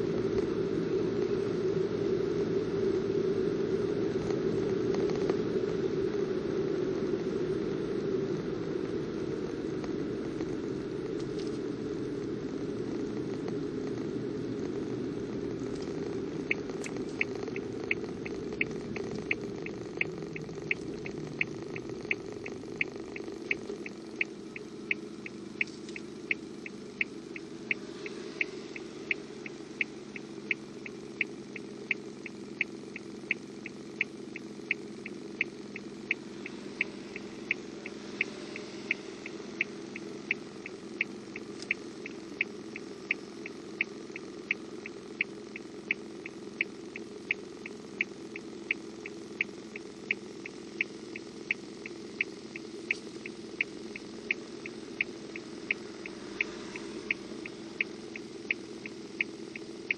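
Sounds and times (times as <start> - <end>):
car engine idling: 0.0 - 59.9
turn signal ticking: 0.0 - 59.9.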